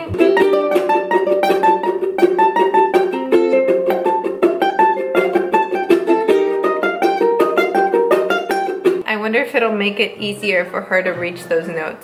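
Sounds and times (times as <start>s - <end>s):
ukuleles strumming: 0.0s - 9.0s, 11.1s - 12.0s.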